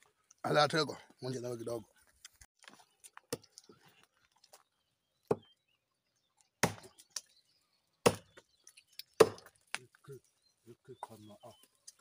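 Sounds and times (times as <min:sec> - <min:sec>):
axe chopping tree trunk: 0:06.6 - 0:07.1, 0:08.0 - 0:08.4, 0:09.0 - 0:09.8.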